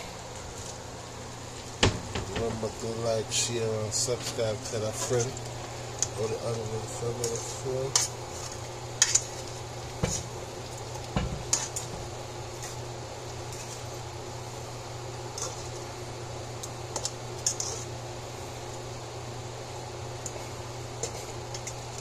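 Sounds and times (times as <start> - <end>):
metal spoon scraping a metal pot: 17.4 - 17.9.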